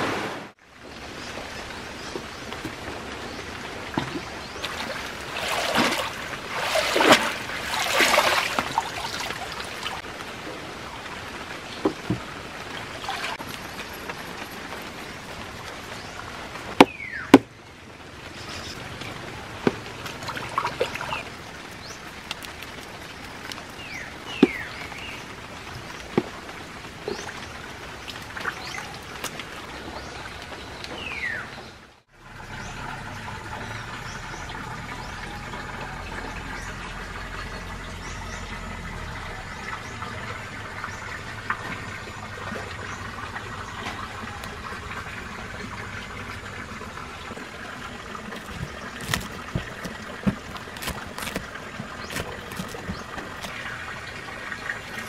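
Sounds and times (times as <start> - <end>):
trickling water: 0.1 - 55.0
fish thrashing and splashing: 4.2 - 10.0, 47.4 - 55.0.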